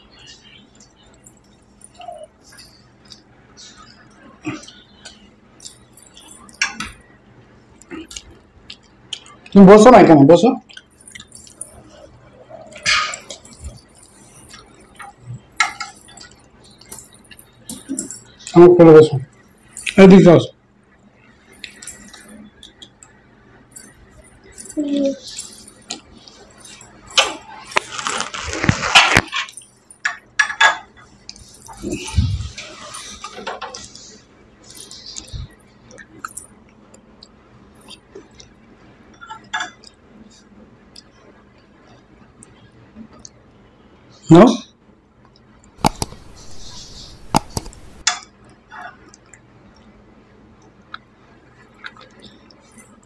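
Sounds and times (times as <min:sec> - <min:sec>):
eating noises: 0:07.8 - 0:09.6, 0:45.4 - 0:50.0, 0:50.6 - 0:53.0
metal spoon clinking glass bowls: 0:10.7 - 0:18.5, 0:45.8 - 0:48.3
mouse clicks: 0:45.8 - 0:48.0.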